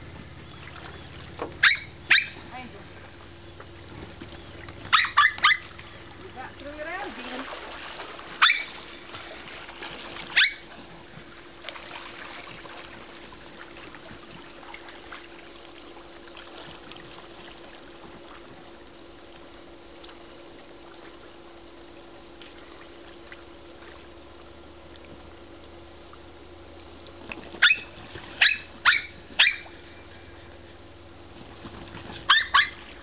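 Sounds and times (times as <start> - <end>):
faint steady hum: 0.0 - 33.0
pool water trickling and lapping: 0.0 - 33.0
dog yipping: 1.6 - 2.4, 4.9 - 5.7, 8.4 - 8.9, 10.3 - 10.7, 27.6 - 29.7, 32.2 - 32.9.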